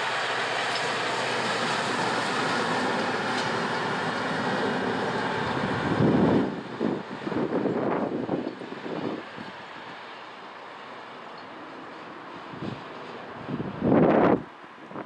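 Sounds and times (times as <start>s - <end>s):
train rolling on rails: 0.0s - 15.0s
gusty rumbling: 0.9s - 9.7s, 12.4s - 15.0s.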